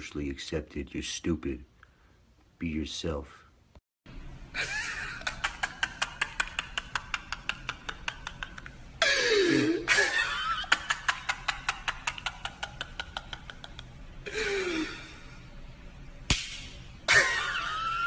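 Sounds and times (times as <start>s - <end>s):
man laughing loudly: 4.6s - 14.8s, 17.1s - 18.0s
sharp click: 16.3s - 16.8s.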